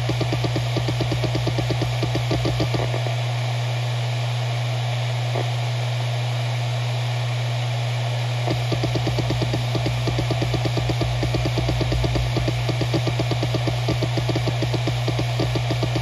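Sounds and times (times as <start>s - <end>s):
hard drive head-seek ticking: 0.0s - 3.0s, 8.5s - 16.0s
hard drive hum: 0.0s - 16.0s.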